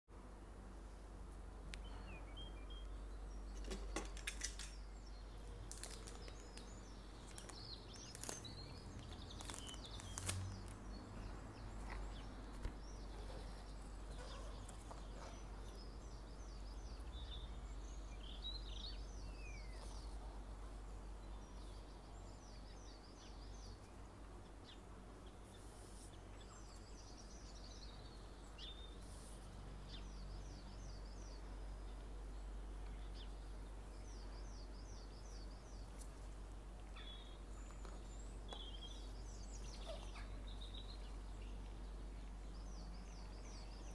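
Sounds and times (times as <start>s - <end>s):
faint low hum: 0.1s - 43.9s
birds chirping: 1.5s - 43.9s
cellophane crinkling and tearing: 5.7s - 6.6s, 7.2s - 10.8s.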